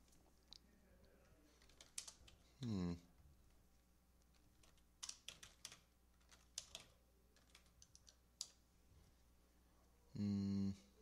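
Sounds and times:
faint keyboard typing: 0.0s - 2.7s, 3.5s - 8.7s.

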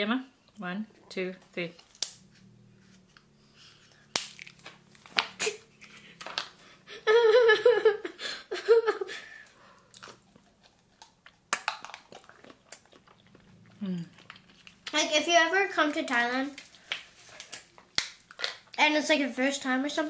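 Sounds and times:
plastic cups popping open: 4.1s - 5.5s, 6.2s - 6.6s, 11.5s - 12.2s, 16.5s - 18.7s.

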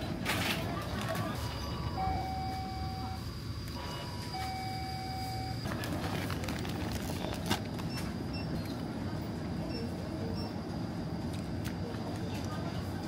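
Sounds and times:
store background hum: 0.0s - 13.0s
plastic packaging crinkling: 5.7s - 7.8s.

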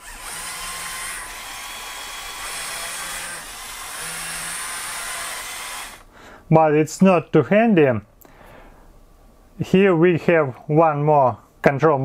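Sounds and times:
toy motors whirring: 0.0s - 6.1s.

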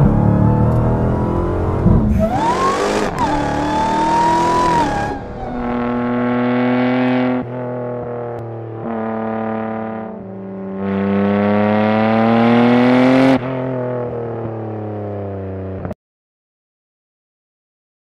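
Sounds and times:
sports car engine revving: 0.0s - 14.2s.

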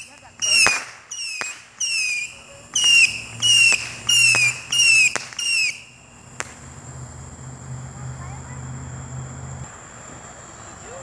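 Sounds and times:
firework cracks: 0.0s - 7.8s
whistling fireworks: 0.0s - 8.6s.

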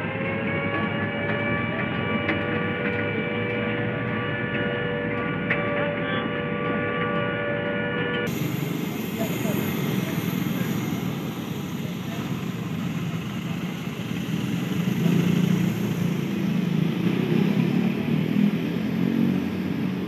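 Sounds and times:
people's voices: 8.2s - 20.0s
truck driving past: 8.2s - 20.0s.

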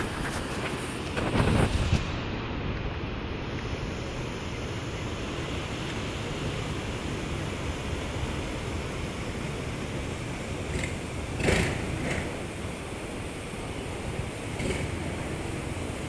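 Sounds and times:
wind noise on microphone: 0.0s - 4.1s.

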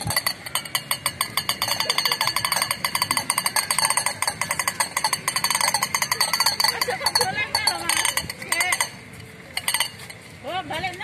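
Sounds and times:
plastic toys rattling on paving: 0.0s - 11.0s.

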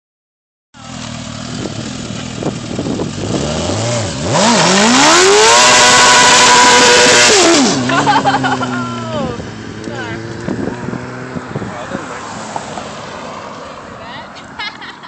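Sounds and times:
motorcycle engine revving: 0.8s - 12.1s.

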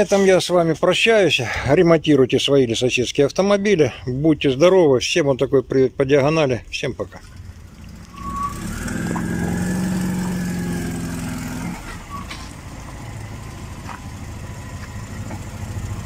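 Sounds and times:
vehicle engine running: 7.1s - 16.0s.

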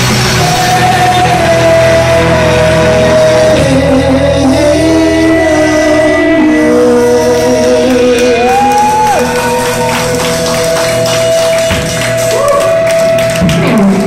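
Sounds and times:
drums and cymbal hits: 0.0s - 4.5s, 8.2s - 14.0s
electric guitars: 0.0s - 14.0s.

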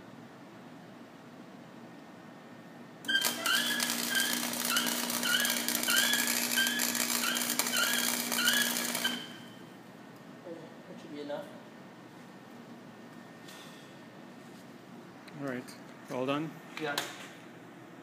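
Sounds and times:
steady hum: 0.0s - 16.7s
welding arc crackling: 3.1s - 9.5s.

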